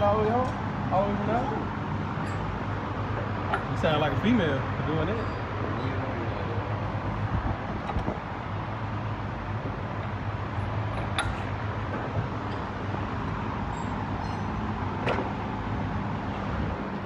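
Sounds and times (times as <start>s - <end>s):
workshop hum: 0.0s - 17.0s
sharp metal clicks: 10.9s - 11.6s.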